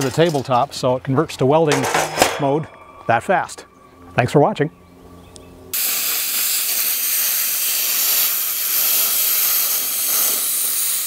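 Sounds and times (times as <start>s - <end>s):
plasma cutter hissing: 5.8s - 11.0s.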